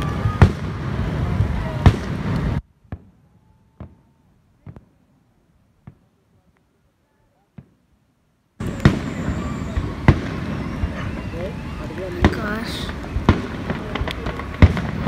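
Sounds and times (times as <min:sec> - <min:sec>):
fireworks bangs: 0:00.0 - 0:05.1, 0:07.5 - 0:07.8, 0:08.6 - 0:15.0.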